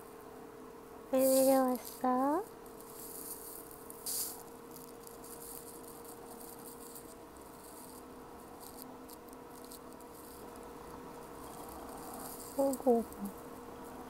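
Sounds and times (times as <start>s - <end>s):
faint steady hum: 0.0s - 14.0s
fingers scratching cat fur: 1.2s - 10.6s, 11.3s - 13.2s.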